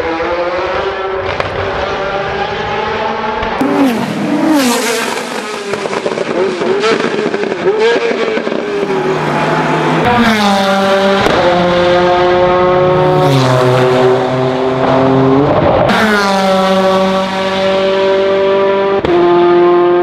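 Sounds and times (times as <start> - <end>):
racing car accelerating through gears: 0.0 - 20.0.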